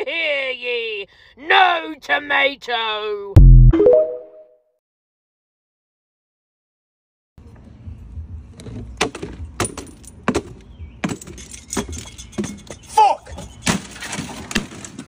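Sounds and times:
faint outdoor noise: 7.4s - 15.0s.

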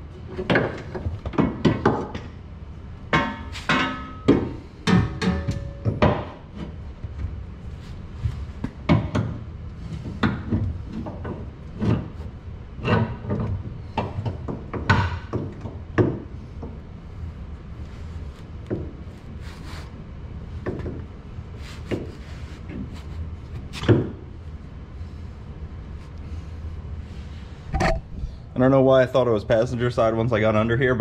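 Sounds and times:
metal clunks and knocks: 3.1s - 6.8s, 8.6s - 12.2s, 12.8s - 16.8s.

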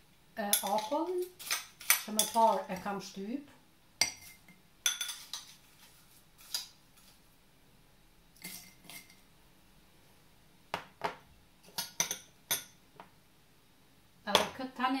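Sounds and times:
spoon and ice clinking on glass: 0.5s - 2.7s, 4.0s - 5.5s, 11.7s - 12.8s.

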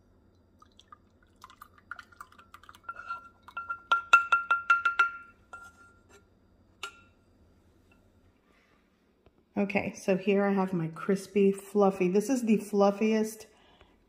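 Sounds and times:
utensil clinking against cookware: 2.7s - 6.0s.

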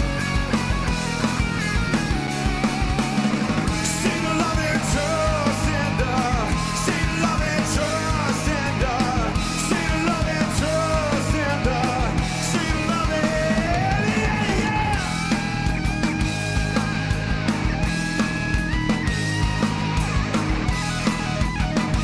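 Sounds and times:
rock band playing: 0.0s - 22.0s
man singing into microphone: 3.8s - 15.2s.

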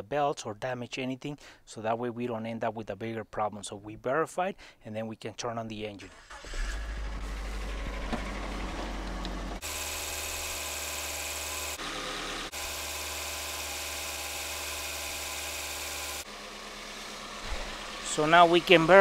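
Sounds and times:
car engine idling: 6.1s - 19.0s.

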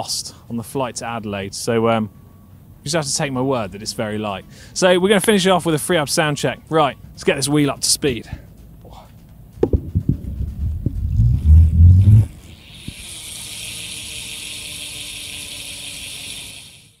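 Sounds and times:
low rumble of spinning wheel: 9.6s - 16.8s
bicycle freehub buzzing: 9.9s - 17.0s.

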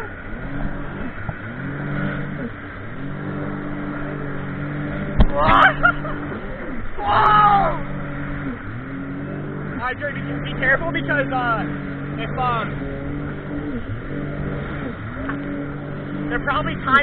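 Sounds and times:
jet ski engine revving: 0.0s - 17.0s.

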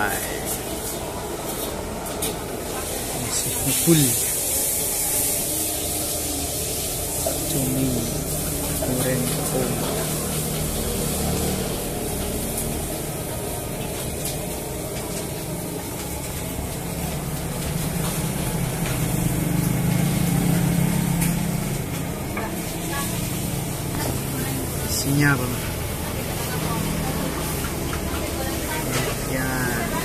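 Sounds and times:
steady hissing noise: 3.2s - 10.2s.

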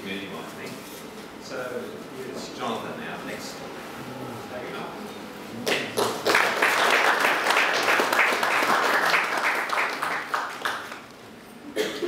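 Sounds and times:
audience clapping: 5.6s - 11.2s.

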